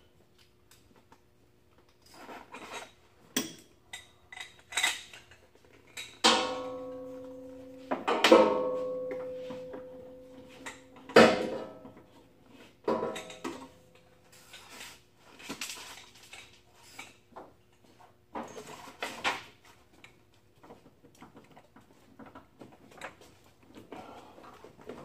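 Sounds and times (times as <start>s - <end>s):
ringing metal clank: 6.2s - 11.9s.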